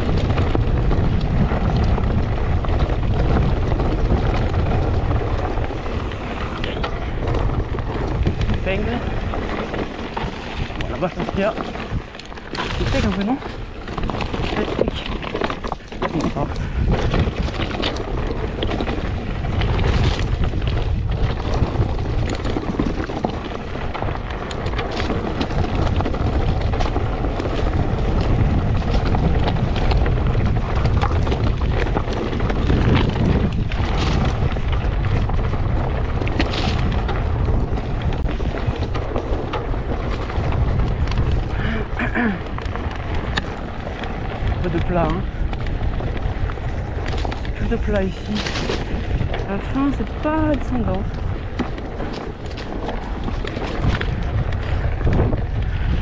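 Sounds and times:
bike clicks and knocks: 0.0 - 44.6, 45.2 - 56.0
tyre noise on dirt: 0.0 - 56.0
wind buffeting microphone: 0.0 - 56.0.

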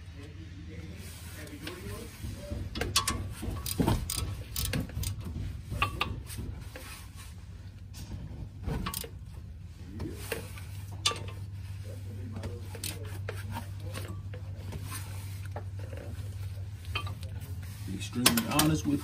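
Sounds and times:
steady low hum: 0.0 - 19.0
tools and metal parts clicking: 2.8 - 6.2, 8.8 - 9.2, 11.0 - 11.5, 12.7 - 14.4, 16.8 - 17.3, 18.2 - 19.0.

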